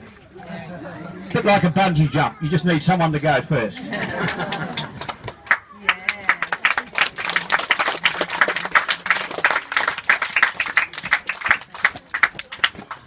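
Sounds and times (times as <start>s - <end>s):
audience applauding: 4.2s - 13.0s.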